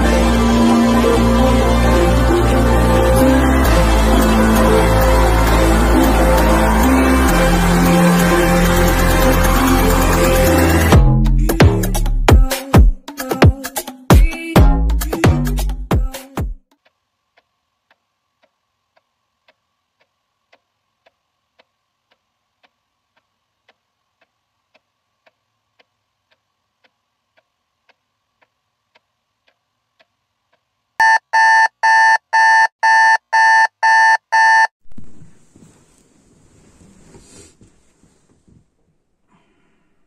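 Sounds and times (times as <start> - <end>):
alarm clock beeping: 31.0 - 34.7.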